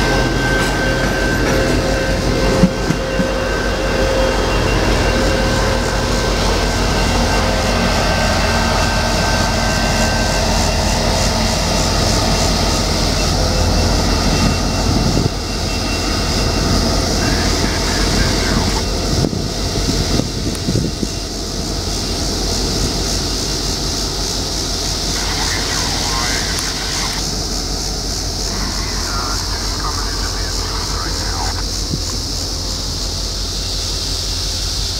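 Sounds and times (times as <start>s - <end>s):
train wheels rumbling on rails: 0.0s - 25.4s
diesel locomotive engine: 0.0s - 34.9s.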